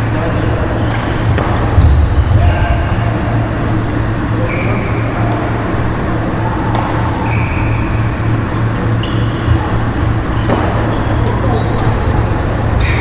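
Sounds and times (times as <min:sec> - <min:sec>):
sports hall hum: 0:00.0 - 0:13.0
shoes squeaking on wooden court: 0:00.7 - 0:02.3, 0:04.5 - 0:05.0, 0:07.1 - 0:08.1, 0:08.9 - 0:12.2, 0:12.8 - 0:13.0.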